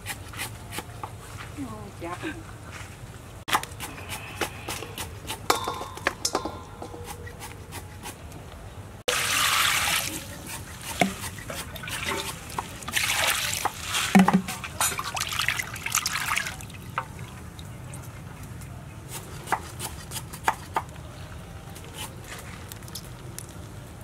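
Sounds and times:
water pouring into bowl: 0:09.1 - 0:10.2
water splashing and sloshing: 0:09.1 - 0:18.3.

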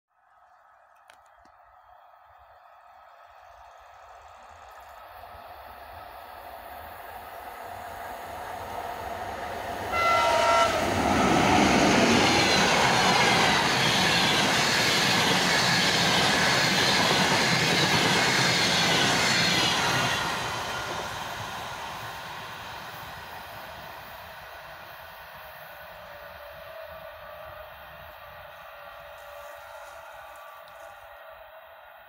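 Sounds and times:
train horn blast: 0:09.9 - 0:11.8.

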